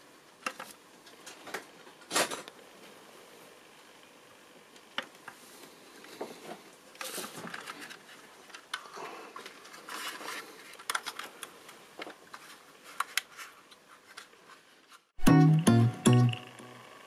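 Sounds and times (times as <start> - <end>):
plucked guitar music: 15.2 - 16.9.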